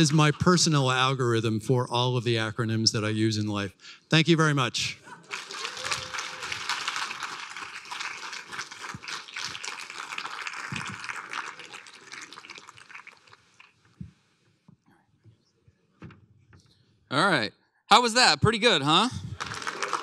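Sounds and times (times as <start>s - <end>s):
audience applauding: 5.2s - 13.7s, 19.0s - 20.0s.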